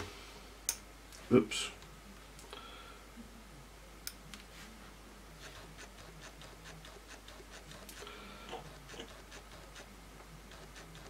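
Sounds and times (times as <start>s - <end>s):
paintbrush dabbing: 5.4s - 11.0s.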